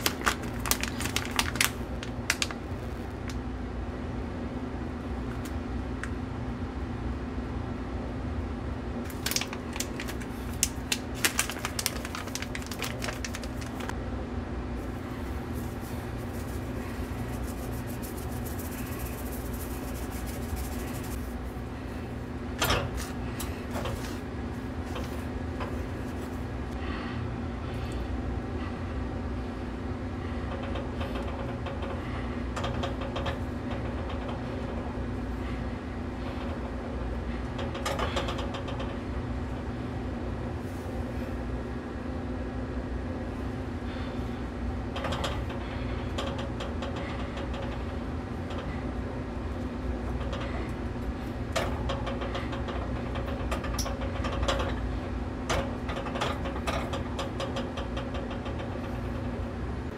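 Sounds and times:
machine hum: 0:00.0 - 0:59.9
hand rustling coating mix in bowl: 0:14.8 - 0:21.5.

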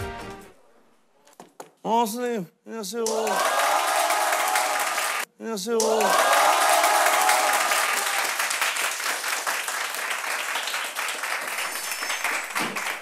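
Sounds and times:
students applauding: 0:03.0 - 0:13.0.

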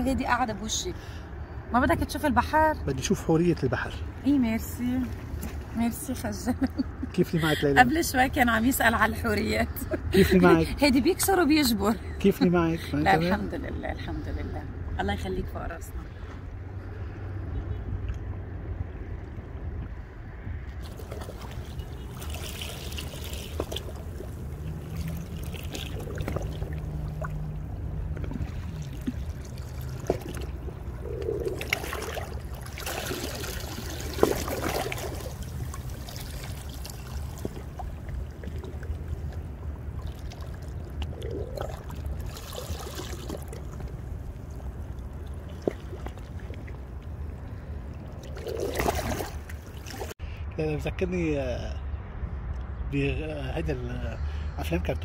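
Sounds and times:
seawater lapping among rocks: 0:20.7 - 0:50.2.

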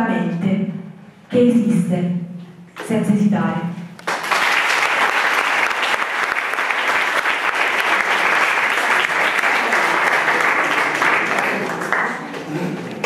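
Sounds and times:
audience applause: 0:04.0 - 0:13.0.

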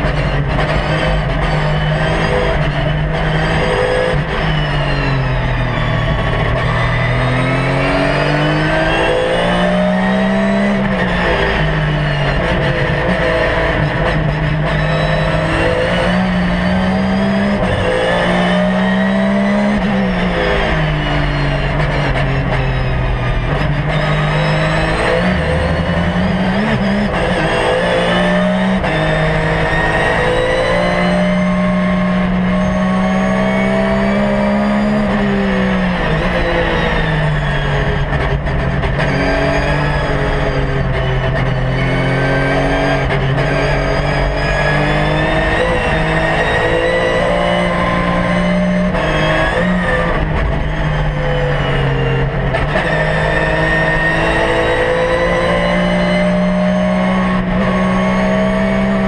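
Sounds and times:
race car engine under load: 0:00.0 - 0:59.0.

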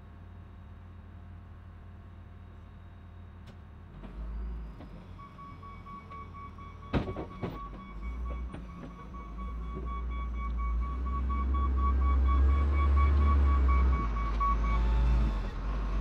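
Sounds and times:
heavy equipment engine rumbling: 0:00.0 - 0:16.0
backup alarm beeping: 0:05.2 - 0:15.5.

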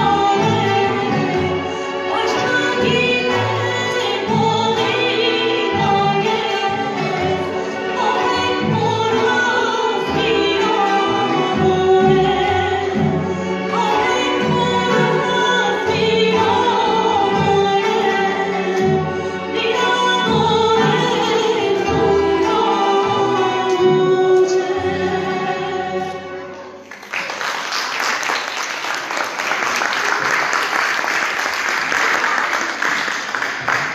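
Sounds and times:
woman singing: 0:00.0 - 0:26.4
instrumental ensemble: 0:00.0 - 0:27.0
applause: 0:26.8 - 0:33.9.

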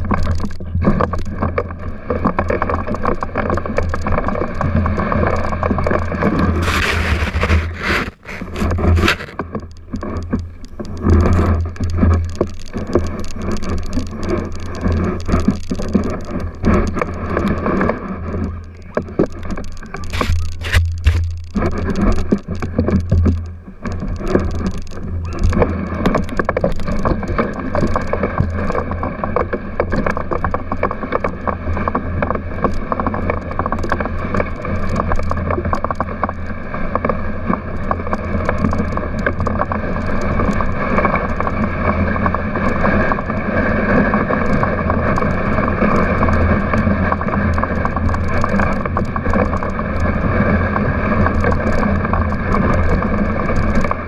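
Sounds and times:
sled clicks and rattles: 0:00.0 - 0:54.0
sled runners scraping over snow: 0:01.0 - 0:54.0
steady low rumble: 0:03.6 - 0:27.8.

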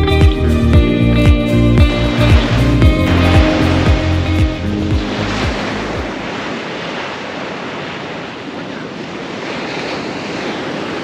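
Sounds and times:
surf washing onto beach: 0:01.8 - 0:11.0.

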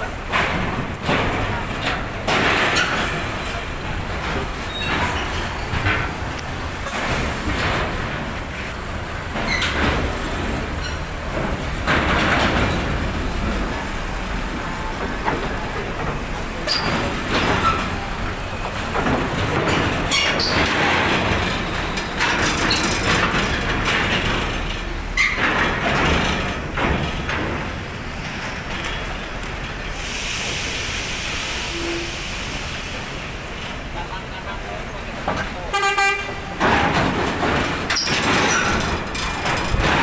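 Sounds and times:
metallic rattling and clanking: 0:14.9 - 0:29.8, 0:36.5 - 0:40.0.

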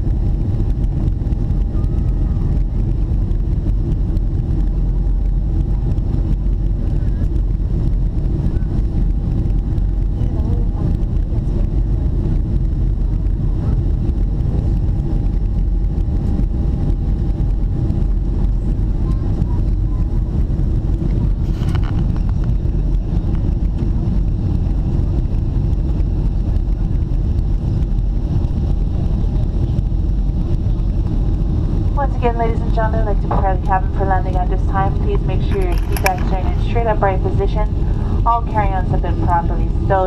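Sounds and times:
jet cabin engine rumble: 0:00.0 - 0:40.0.

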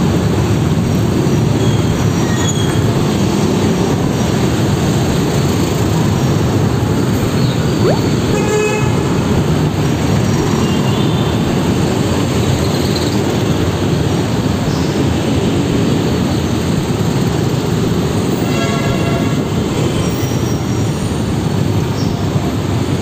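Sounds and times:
congested traffic engine rumble: 0:00.0 - 0:18.5.

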